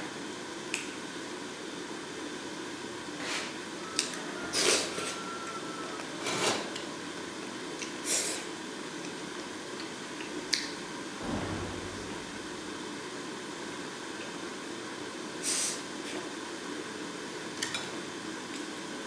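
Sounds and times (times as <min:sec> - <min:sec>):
soft thump: 0:11.2 - 0:12.6.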